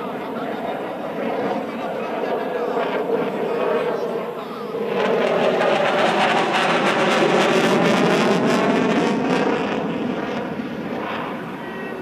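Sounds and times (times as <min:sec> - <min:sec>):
jet engine noise: 0:00.0 - 0:12.0.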